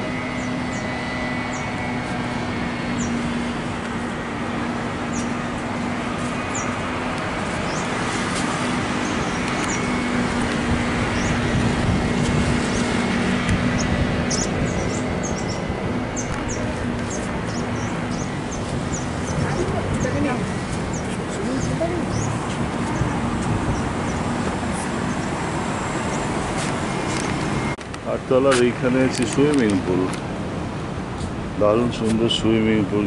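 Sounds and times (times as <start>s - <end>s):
city traffic hum: 0.0s - 33.0s
small birds chirping: 0.1s - 26.4s.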